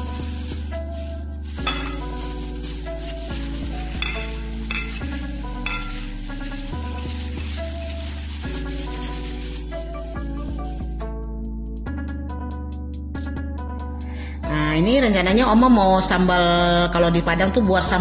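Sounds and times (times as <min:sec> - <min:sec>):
instrumental music: 0:00.0 - 0:14.0.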